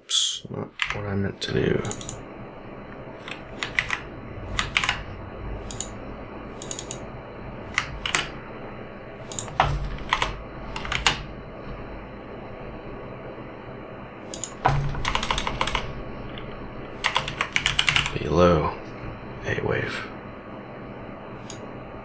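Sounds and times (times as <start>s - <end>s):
low background hum: 0.0s - 22.0s
keyboard typing: 0.8s - 1.0s, 1.8s - 2.2s, 3.2s - 6.0s, 6.6s - 7.0s, 7.7s - 8.4s, 9.3s - 11.3s, 14.3s - 18.2s.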